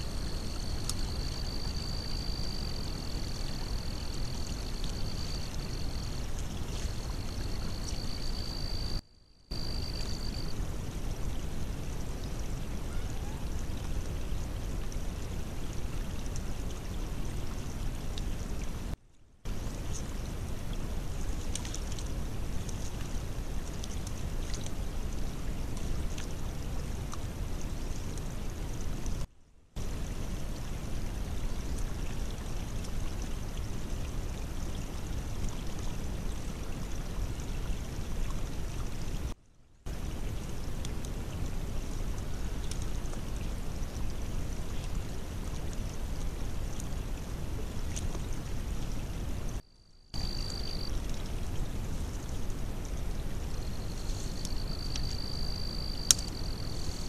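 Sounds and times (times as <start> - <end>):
faint high ticks: 0.0 - 2.0, 53.7 - 57.0
faint clicks: 56.0 - 56.5.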